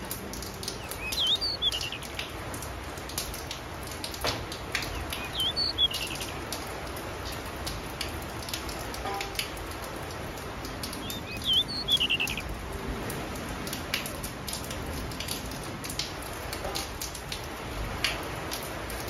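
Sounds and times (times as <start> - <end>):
finches chirping: 0.6 - 2.2, 4.8 - 6.5, 10.9 - 12.5.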